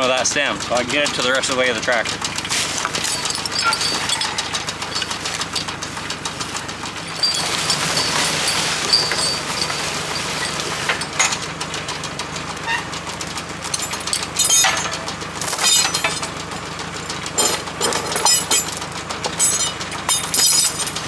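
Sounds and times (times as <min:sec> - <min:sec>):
tractor engine idling: 0:00.0 - 0:21.0
metal chains clinking: 0:02.8 - 0:05.8, 0:06.9 - 0:11.6, 0:13.0 - 0:21.0.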